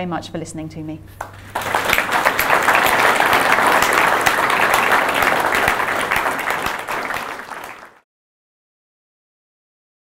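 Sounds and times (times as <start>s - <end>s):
audience applauding: 1.2s - 8.0s.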